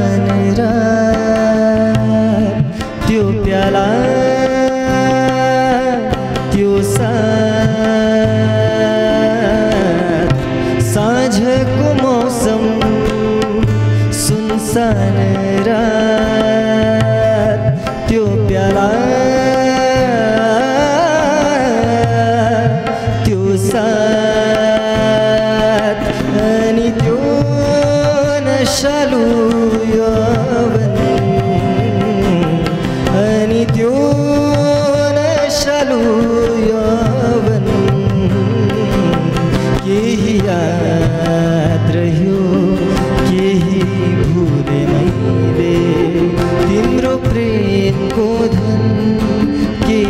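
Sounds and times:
harmonium chords: 0:00.0 - 0:50.0
man singing: 0:00.0 - 0:50.0
tabla strokes: 0:00.0 - 0:50.0.

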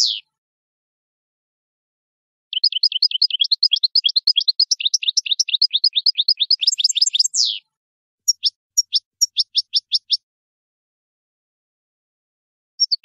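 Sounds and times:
goldfinch singing: 0:00.0 - 0:00.3, 0:02.5 - 0:07.6, 0:08.3 - 0:10.2, 0:12.8 - 0:13.0.

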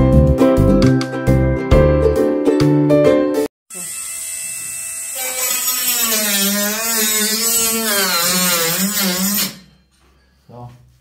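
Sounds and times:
handheld power tool cutting: 0:03.7 - 0:09.7.

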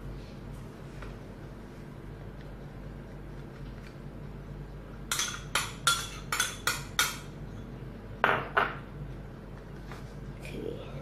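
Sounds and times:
kitchen utensils clinking: 0:05.1 - 0:07.3.

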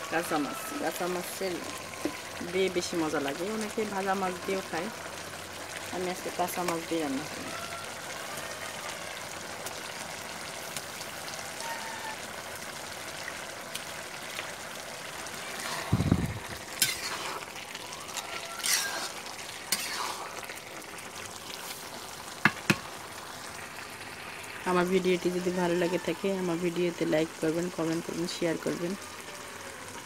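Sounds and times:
curry bubbling in a pan: 0:00.0 - 0:30.0
metal spatula scraping a pan: 0:15.5 - 0:17.5, 0:18.2 - 0:20.5.

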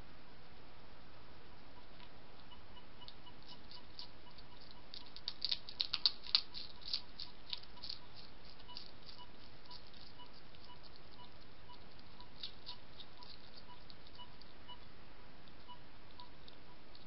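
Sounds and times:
hedgehogs crunching biscuits: 0:03.4 - 0:14.9.

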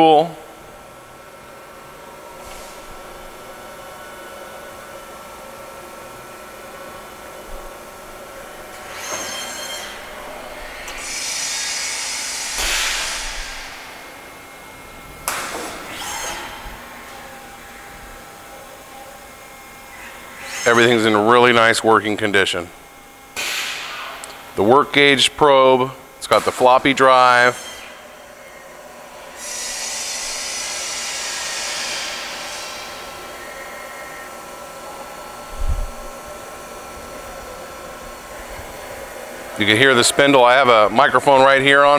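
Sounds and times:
machine hum with whining: 0:00.0 - 0:41.9
lathe machine running: 0:00.7 - 0:15.1
loud hiss: 0:10.6 - 0:14.1, 0:29.3 - 0:33.3
hissing bursts: 0:10.8 - 0:13.9.

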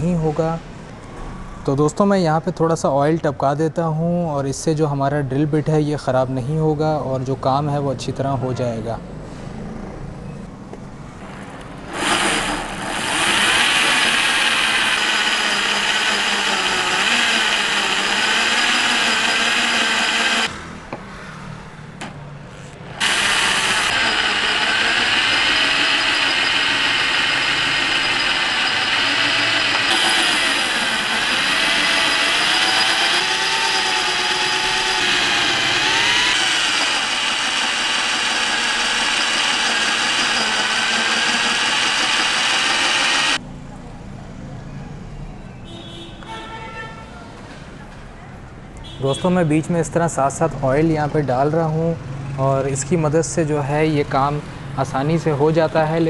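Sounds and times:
rotary hammer drilling into metal: 0:11.9 - 0:20.5, 0:22.9 - 0:43.4.

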